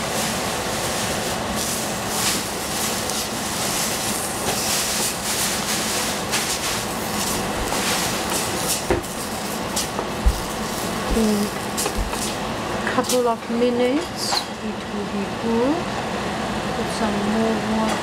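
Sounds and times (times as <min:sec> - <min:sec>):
vegetables sizzling in a pan: 0:00.0 - 0:12.5.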